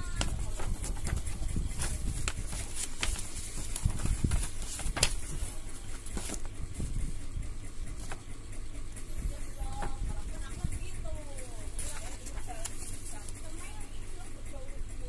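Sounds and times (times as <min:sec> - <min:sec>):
paper rustling and crackling: 0:00.0 - 0:08.4, 0:11.5 - 0:13.9.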